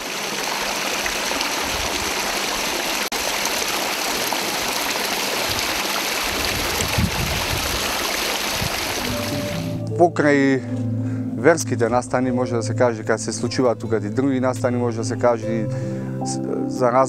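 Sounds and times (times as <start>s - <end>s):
fountain water splashing: 0.0s - 9.8s.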